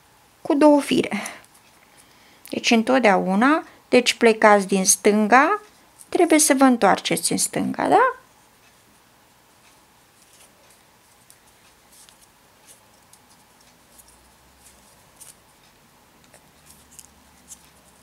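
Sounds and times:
paper tubes rustling and ticking: 0:09.6 - 0:18.0.

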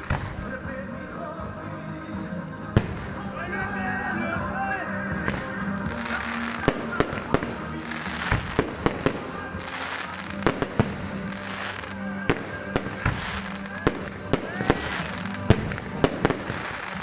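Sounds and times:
fireworks crackle and hiss: 0:00.0 - 0:00.6, 0:05.1 - 0:17.0
background music: 0:00.0 - 0:17.0
voices: 0:00.0 - 0:17.0
fireworks bangs: 0:02.8 - 0:03.8, 0:05.0 - 0:17.0.

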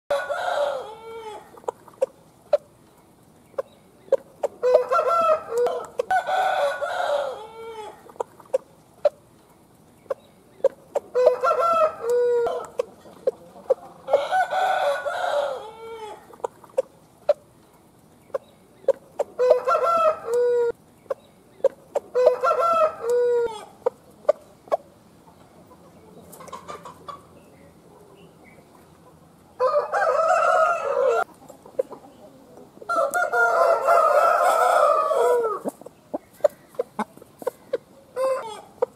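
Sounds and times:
roosters crowing: 0:00.1 - 0:01.7, 0:04.5 - 0:08.1, 0:11.0 - 0:12.9, 0:13.7 - 0:16.4, 0:19.3 - 0:20.8, 0:22.0 - 0:23.8, 0:29.5 - 0:31.3, 0:32.8 - 0:35.9, 0:37.5 - 0:38.9.

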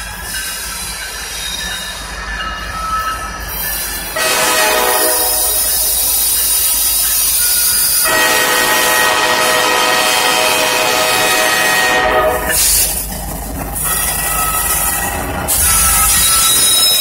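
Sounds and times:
locomotive air horn: 0:04.2 - 0:05.7, 0:08.0 - 0:12.9.

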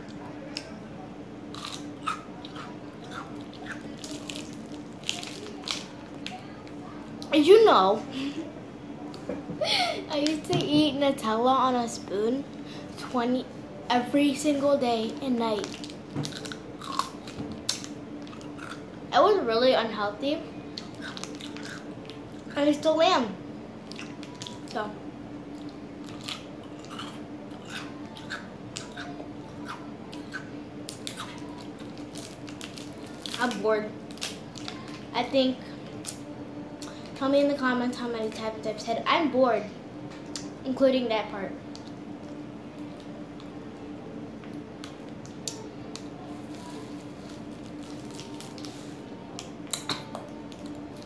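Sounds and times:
steady low hum: 0:00.0 - 0:51.0
chewing and sucking on ice: 0:15.6 - 0:18.9, 0:25.6 - 0:33.5.

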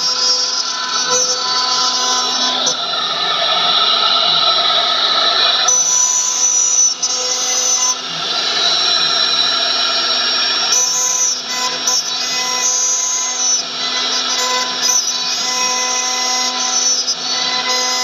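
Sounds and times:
router spindle high whine: 0:00.0 - 0:18.0
rasp of cutting wood: 0:10.8 - 0:18.0.

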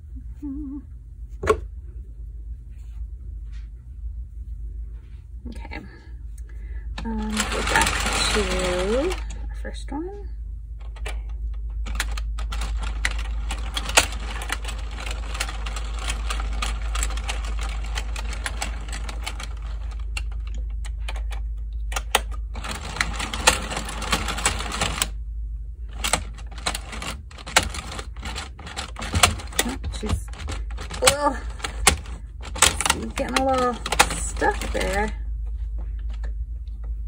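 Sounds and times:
knitting machine clattering clicks: 0:07.0 - 0:09.4, 0:11.8 - 0:20.6, 0:22.0 - 0:25.1, 0:25.9 - 0:35.2.

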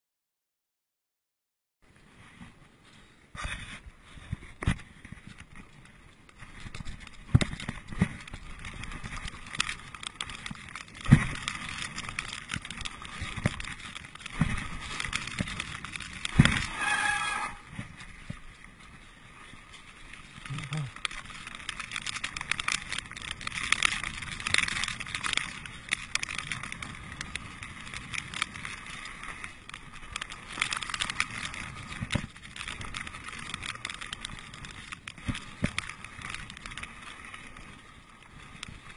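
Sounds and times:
bike tyre noise on dirt: 0:01.8 - 0:38.9
bike knocks and rattles: 0:06.4 - 0:16.8
brief high squeal: 0:16.7 - 0:17.7.

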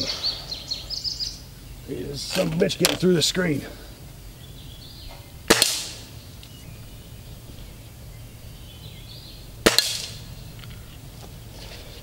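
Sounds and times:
air rifle shot cracks: 0:05.4 - 0:06.1, 0:09.6 - 0:10.2.

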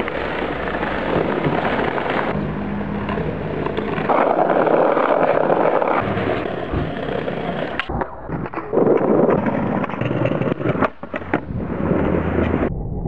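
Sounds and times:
skateboard wheels on asphalt: 0:00.0 - 0:12.7.

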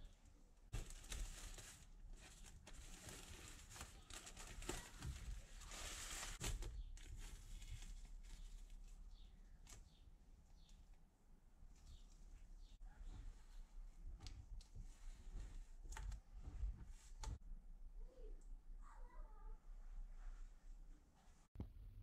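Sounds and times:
plastic sheeting and tape crinkling: 0:00.7 - 0:09.0.

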